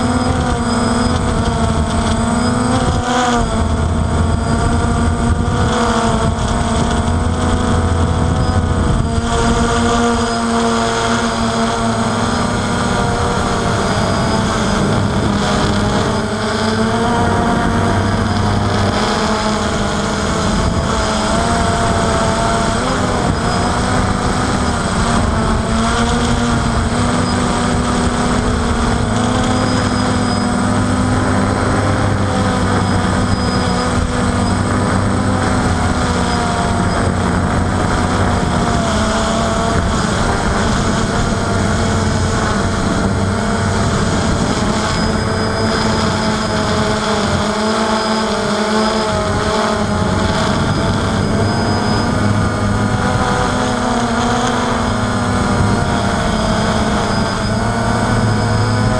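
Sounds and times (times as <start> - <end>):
drone propellers buzzing: 0.0 - 58.9
wind buffeting: 0.0 - 58.9.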